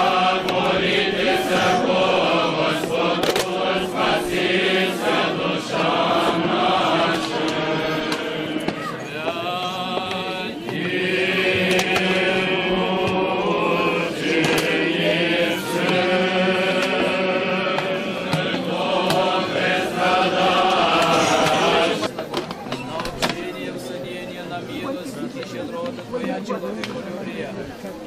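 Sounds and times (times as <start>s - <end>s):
choir chanting long held notes: 0.0s - 22.1s.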